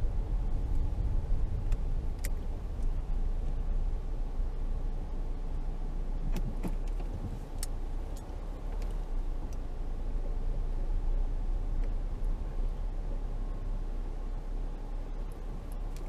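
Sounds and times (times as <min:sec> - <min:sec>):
vehicle engine and road noise: 0:00.0 - 0:16.0.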